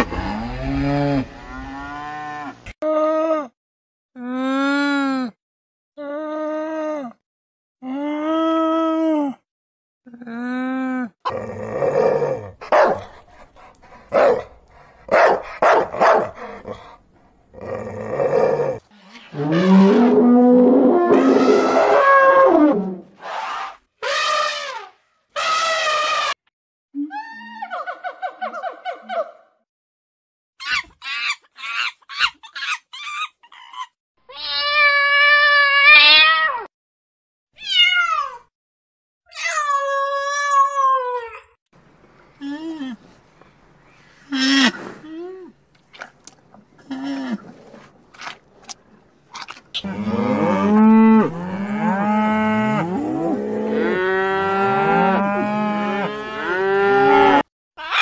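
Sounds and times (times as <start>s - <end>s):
dog barking: 12.6s - 13.1s, 14.1s - 14.5s, 15.1s - 16.4s.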